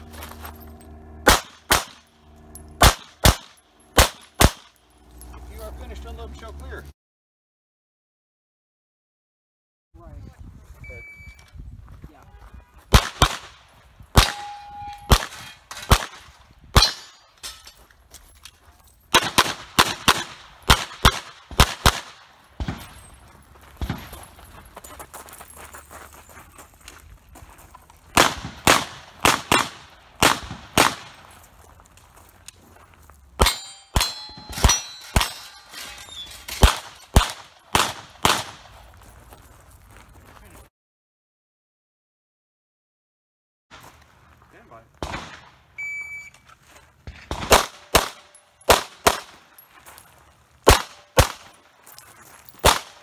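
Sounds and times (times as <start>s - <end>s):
pistol shots: 1.2s - 2.1s, 2.8s - 4.8s, 12.9s - 17.2s, 19.1s - 23.0s, 28.1s - 31.3s, 33.4s - 35.5s, 36.5s - 38.8s, 45.0s - 45.6s, 47.1s - 49.4s, 50.6s - 51.6s, 52.6s - 53.0s
metal targets ringing: 14.2s - 15.9s, 16.8s - 17.9s, 33.4s - 37.2s
short ringing tone: 14.4s - 15.1s, 45.8s - 46.4s.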